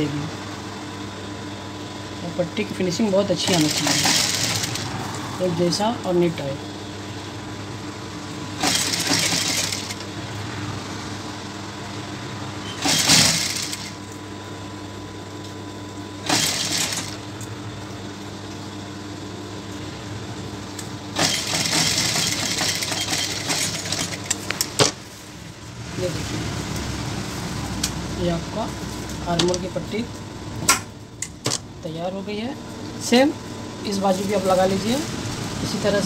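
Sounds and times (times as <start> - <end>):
sewing machine stitching: 3.4 - 4.8, 8.6 - 10.1, 12.6 - 14.0, 16.2 - 17.2, 21.2 - 24.4
sewing machine motor humming: 3.4 - 5.0, 8.5 - 10.3, 12.6 - 14.0, 16.2 - 17.4, 21.1 - 24.6.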